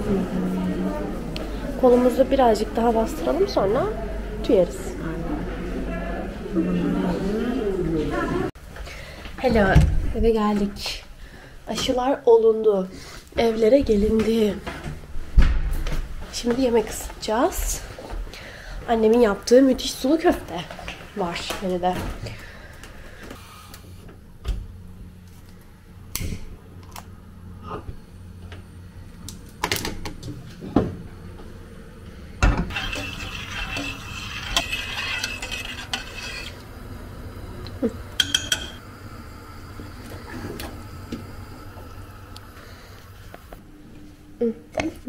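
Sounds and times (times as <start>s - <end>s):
steady low hum: 13.2s - 45.0s
pots and plates clinking: 32.4s - 36.6s, 38.2s - 38.8s.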